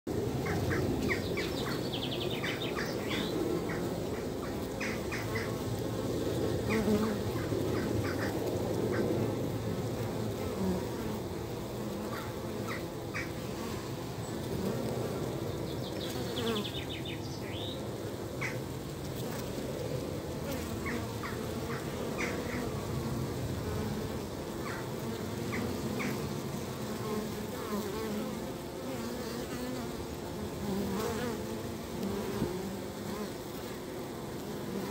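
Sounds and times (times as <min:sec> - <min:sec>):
bees buzzing: 0:00.1 - 0:34.9.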